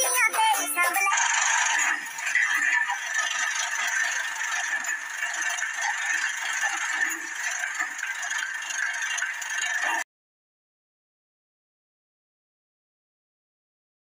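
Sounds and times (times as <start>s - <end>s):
tractor engine rattling: 0.0s - 10.0s.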